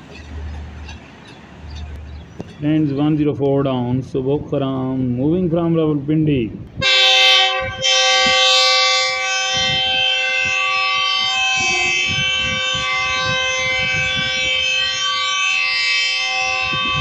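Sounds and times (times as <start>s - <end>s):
locomotive air horn blast: 6.8s - 17.0s.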